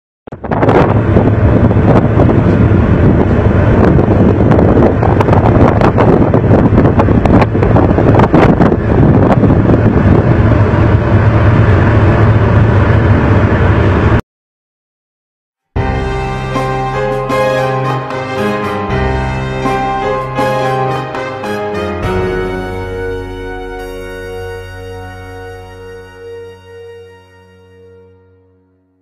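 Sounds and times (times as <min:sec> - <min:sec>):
boat engine drone: 0:00.3 - 0:14.2, 0:15.8 - 0:29.0
wind buffeting microphone: 0:00.3 - 0:14.2.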